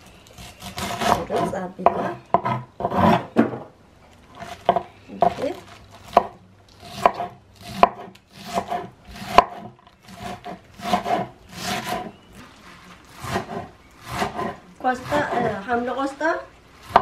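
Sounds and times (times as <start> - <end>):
knife scraping cuts: 0.3 - 3.4, 4.4 - 15.7
knife chopping on wooden board: 0.4 - 3.6, 6.1 - 12.1, 13.2 - 15.6.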